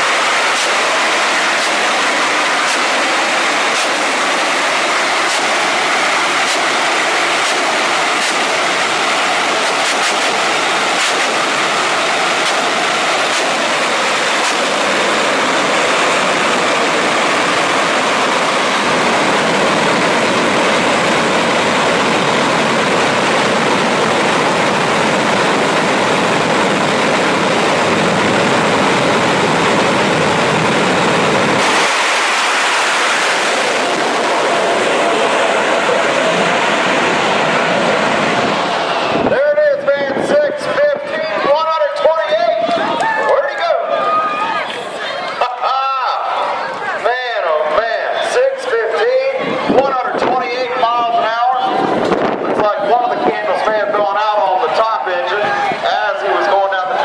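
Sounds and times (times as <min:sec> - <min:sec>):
sharp pops: 0:00.0 - 0:01.9, 0:02.5 - 0:02.9, 0:03.5 - 0:04.5, 0:05.2 - 0:05.6, 0:06.4 - 0:08.8, 0:09.5 - 0:11.6, 0:12.2 - 0:15.0
loud jet engine roar: 0:00.0 - 0:57.0.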